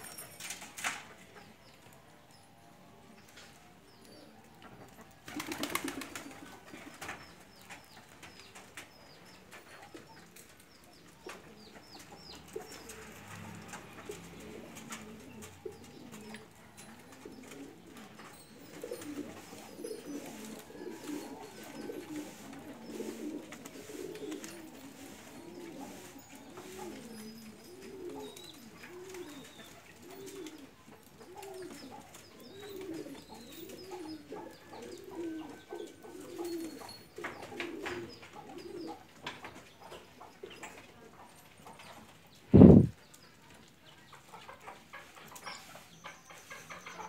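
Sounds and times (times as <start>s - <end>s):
pigeons cooing: 4.0s - 10.4s, 11.3s - 41.9s.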